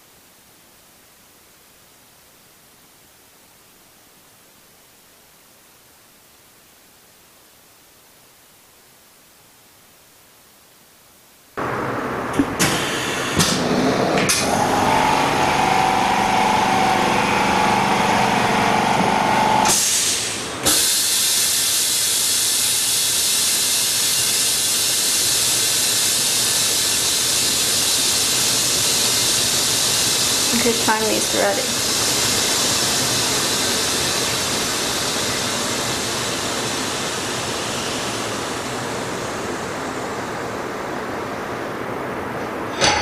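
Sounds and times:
machine hum: 0:11.6 - 0:20.7
compressed air hissing: 0:12.6 - 0:38.6.

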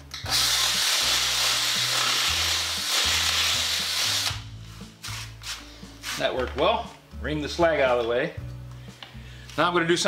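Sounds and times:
soft background music: 0:00.0 - 0:10.0
drill grinding metal: 0:00.3 - 0:04.4.

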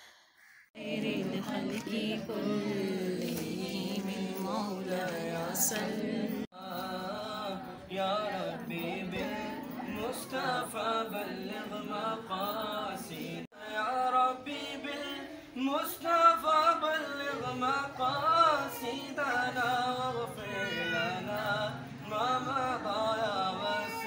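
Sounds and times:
group singing unaccompanied: 0:00.8 - 0:24.0
young man leading singing: 0:06.6 - 0:24.0.

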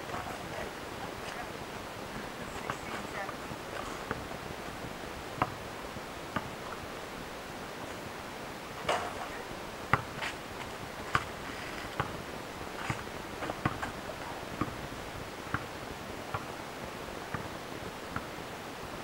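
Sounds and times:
steady hiss: 0:00.0 - 0:19.0
basketball bouncing on asphalt: 0:04.1 - 0:04.3, 0:05.4 - 0:05.6, 0:06.3 - 0:06.8, 0:09.9 - 0:12.2, 0:12.8 - 0:14.0, 0:14.6 - 0:14.8, 0:16.3 - 0:16.5.

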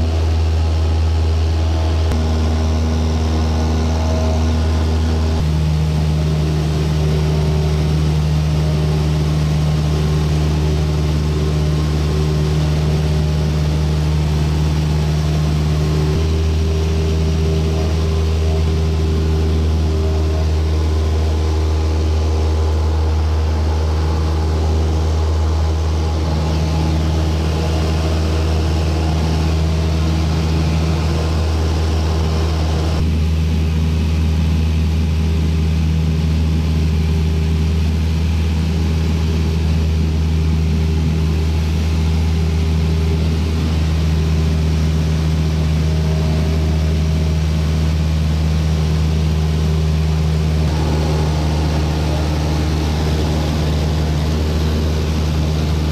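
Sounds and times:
light aircraft engine droning: 0:00.0 - 0:55.9
airflow noise: 0:02.0 - 0:33.0, 0:43.5 - 0:55.9.

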